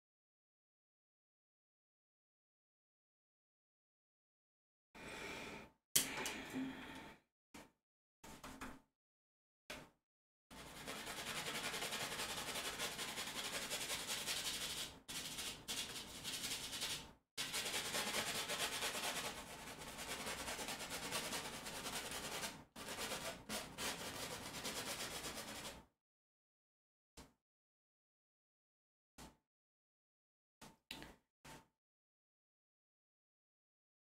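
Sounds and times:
paintbrush scrubbing on canvas: 0:10.6 - 0:25.8.

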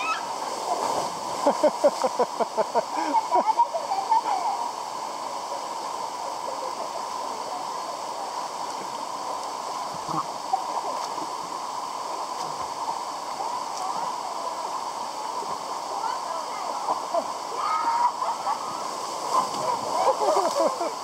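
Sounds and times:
waterfall rushing: 0:00.0 - 0:21.0.

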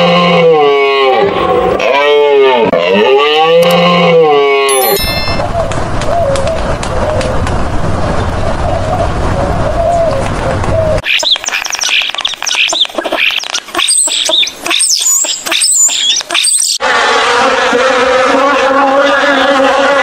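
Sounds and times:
steady rushing noise: 0:05.4 - 0:11.0
kookaburra cackling: 0:11.0 - 0:16.8.

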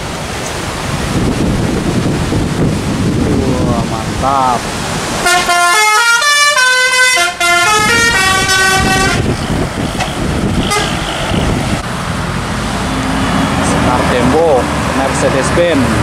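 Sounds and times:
bus engine and road noise: 0:00.0 - 0:16.0
bus horn playing a tune: 0:05.2 - 0:09.3, 0:10.2 - 0:11.5.

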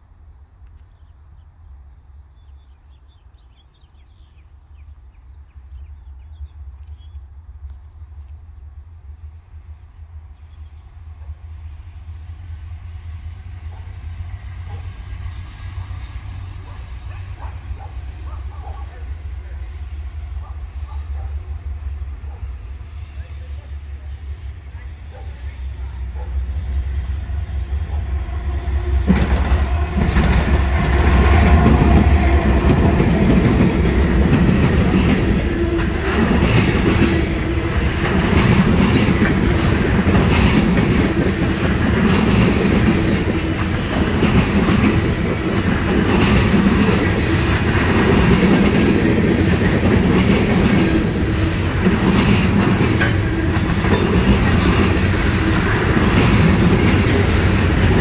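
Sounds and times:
diesel locomotive rumble: 0:00.0 - 0:58.0
train wheels clickety-clack: 0:13.6 - 0:15.8, 0:16.5 - 0:19.2, 0:27.8 - 0:58.0
rattling freight cars: 0:24.8 - 0:58.0.

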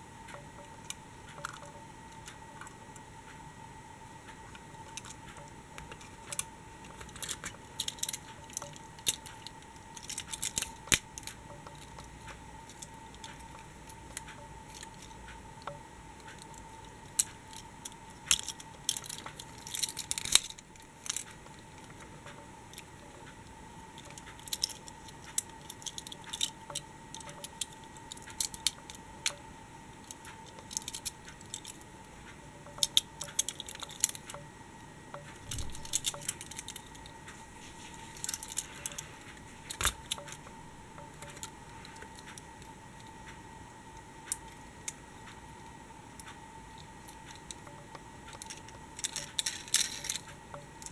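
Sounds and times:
toy vehicles clicking and clattering: 0:07.0 - 0:12.1, 0:17.2 - 0:21.4, 0:24.0 - 0:29.4, 0:30.2 - 0:31.8, 0:32.8 - 0:34.4, 0:35.4 - 0:37.0, 0:38.2 - 0:39.1, 0:48.3 - 0:50.9.

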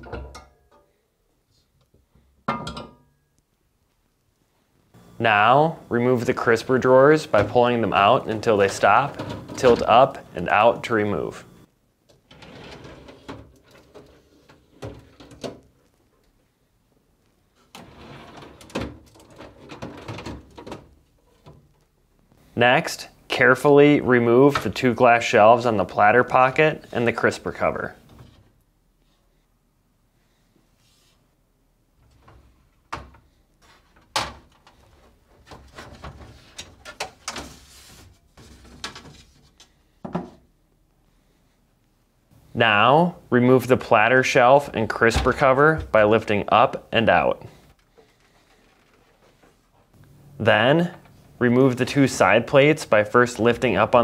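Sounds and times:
plastic drawers sliding and clacking: 0:07.3 - 0:10.1, 0:12.2 - 0:15.6, 0:17.7 - 0:21.6, 0:33.7 - 0:39.6
drawer rattling: 0:08.3 - 0:10.0, 0:12.3 - 0:15.6, 0:17.8 - 0:21.0.

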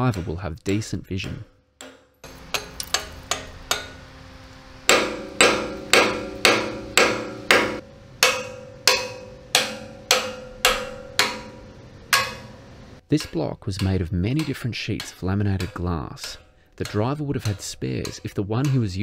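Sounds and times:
hammer striking steel: 0:00.0 - 0:04.2, 0:04.8 - 0:19.0.

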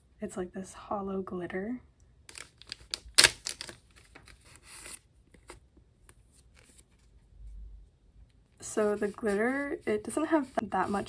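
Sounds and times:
plastic bag ripped open: 0:02.3 - 0:03.8.

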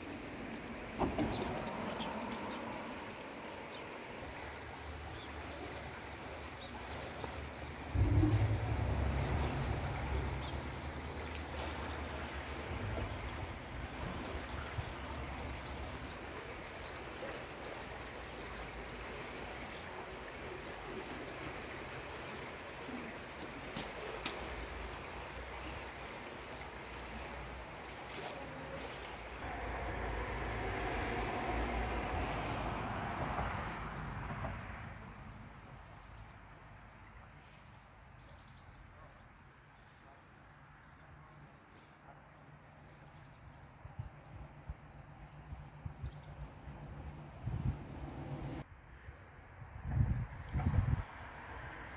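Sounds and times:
river water flowing: 0:00.0 - 0:38.3
wind rumbling on microphone: 0:07.8 - 0:11.2, 0:43.8 - 0:51.9.

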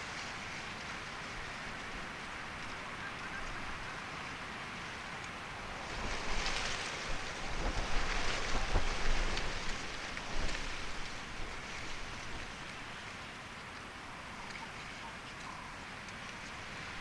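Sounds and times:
wind rustling a bush: 0:00.0 - 0:17.0
wind buffeting microphone: 0:05.6 - 0:13.0.

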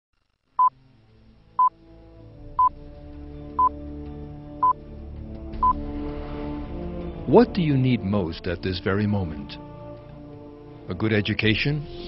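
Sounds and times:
slow synthesized music pad: 0:00.8 - 0:08.4.

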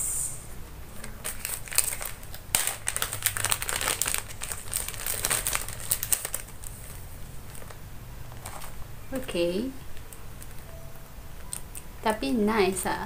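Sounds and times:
plastic packaging crinkling: 0:01.0 - 0:07.8, 0:08.4 - 0:09.3.

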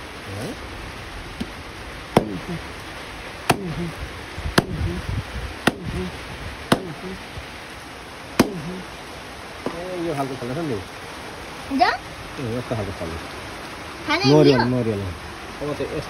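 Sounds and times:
blade chopping into fruit: 0:02.2 - 0:02.6, 0:03.5 - 0:03.9, 0:04.6 - 0:05.0, 0:05.6 - 0:06.1, 0:06.7 - 0:07.0, 0:08.4 - 0:08.8.

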